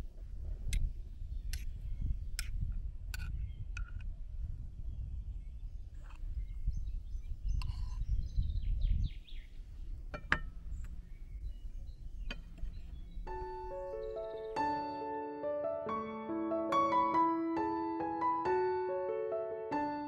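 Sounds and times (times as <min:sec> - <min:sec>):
faint bird chirps: 0:04.9 - 0:14.8
soft piano music: 0:12.3 - 0:20.0.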